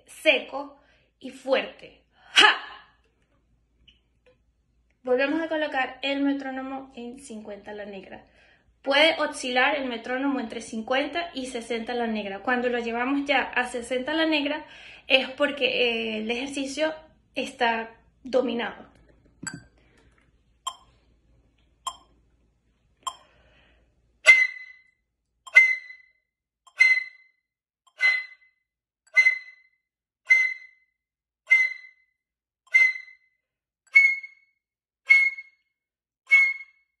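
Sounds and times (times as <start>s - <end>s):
metronome ticking: 20.7s - 20.9s, 21.8s - 22.1s, 23.1s - 23.3s
flute playing short sharp notes: 24.3s - 24.8s, 25.5s - 26.1s, 26.7s - 27.3s, 27.9s - 28.4s, 29.1s - 29.6s, 30.3s - 30.8s, 31.5s - 32.0s, 32.7s - 33.2s, 33.9s - 34.4s, 35.1s - 35.6s, 36.3s - 36.8s.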